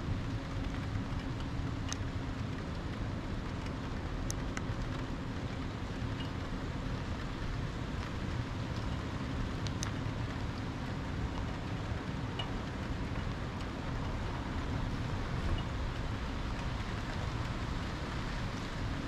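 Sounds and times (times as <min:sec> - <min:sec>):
rain and wind: 0:00.0 - 0:19.0
light tick: 0:00.6 - 0:06.6, 0:07.2 - 0:14.1.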